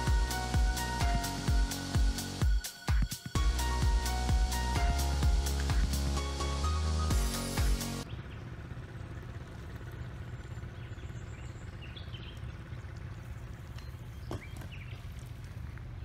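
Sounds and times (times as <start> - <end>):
background music: 0.0 - 8.0
low outdoor rumble: 3.4 - 16.0
small birds chirping: 7.6 - 16.0.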